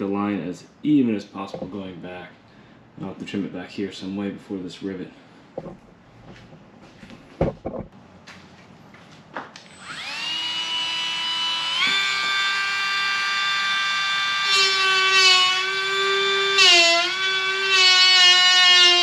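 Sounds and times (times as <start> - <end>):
rotary tool high whine: 9.6 - 19.0.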